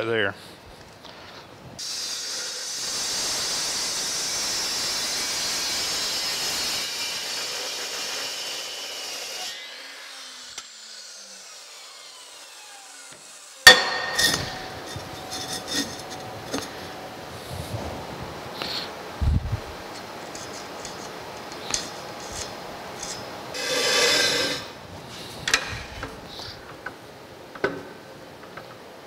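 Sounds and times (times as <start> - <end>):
metal saw cutting steel: 1.8 - 17.0, 20.3 - 24.8
saw blade coasting down whine: 9.3 - 17.2
loud metal clank: 13.7 - 16.9.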